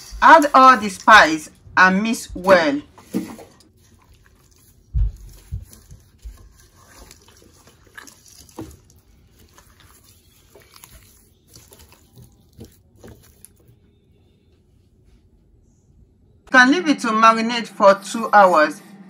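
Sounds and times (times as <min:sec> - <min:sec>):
wet squelching of meat: 0:03.0 - 0:13.7.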